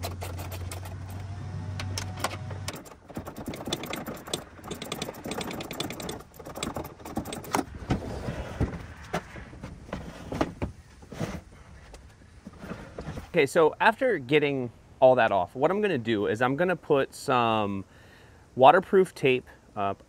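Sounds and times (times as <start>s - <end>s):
socket ratchet clicking: 2.7s - 7.6s
metal clinks and knocks: 2.7s - 7.7s.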